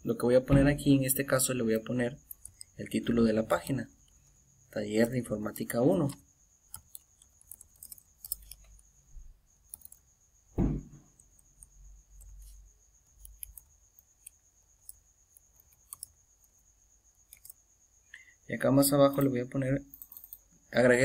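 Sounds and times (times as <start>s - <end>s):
loud thump: 0.5s - 0.9s, 10.5s - 11.1s
computer keyboard typing: 6.0s - 8.8s, 9.7s - 10.1s, 13.2s - 16.2s.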